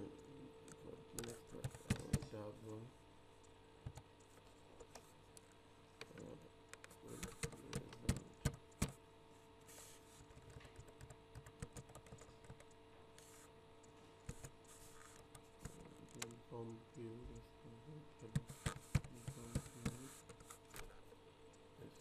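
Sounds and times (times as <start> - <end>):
faint steady hum: 0.0 - 22.0
computer keyboard typing: 0.7 - 2.4, 6.0 - 9.0, 10.2 - 13.4, 14.3 - 17.4, 18.2 - 20.9.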